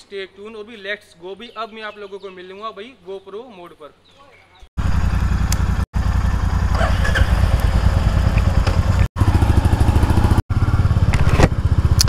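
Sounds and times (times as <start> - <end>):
motorcycle engine running: 4.8 - 12.0.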